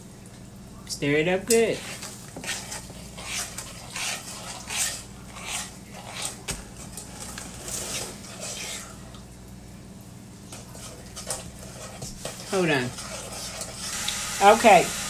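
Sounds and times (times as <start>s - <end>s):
metal spoon scraping saucepan: 1.5s - 6.4s, 10.8s - 13.9s.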